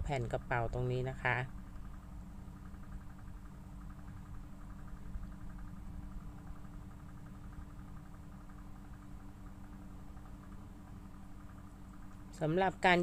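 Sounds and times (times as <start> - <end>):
fast pulsing sound: 0.0 - 13.0
low background hum: 0.0 - 13.0.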